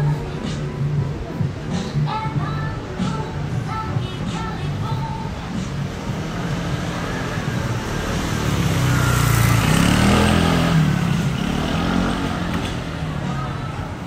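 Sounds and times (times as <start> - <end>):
vehicle driving past: 6.0 - 13.2.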